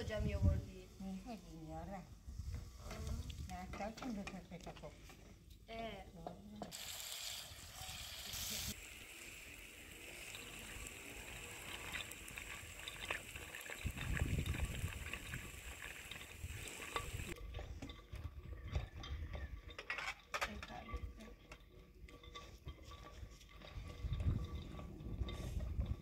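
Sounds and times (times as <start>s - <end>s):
vegetables sizzling in a pan: 6.7s - 17.4s.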